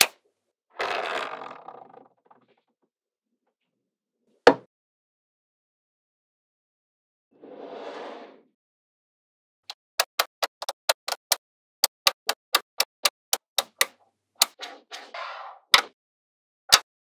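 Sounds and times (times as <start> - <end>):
soft scrape: 7.4 - 8.5
magnetic balls snapping together: 10.0 - 14.6.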